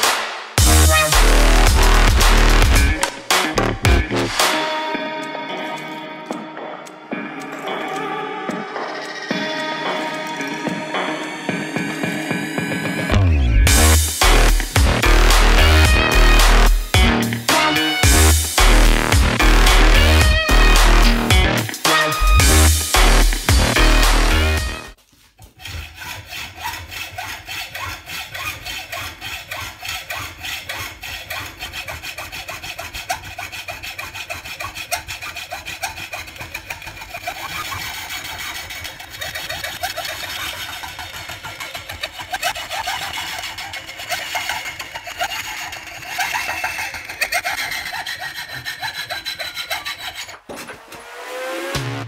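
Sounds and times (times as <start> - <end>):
hacksaw cutting steel: 0.0 - 11.5, 13.7 - 51.8.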